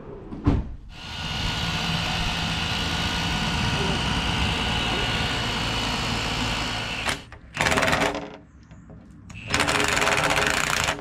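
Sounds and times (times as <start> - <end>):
machine engine running: 0.9 - 7.9
power drill boring into wall: 0.9 - 8.1, 9.3 - 11.0.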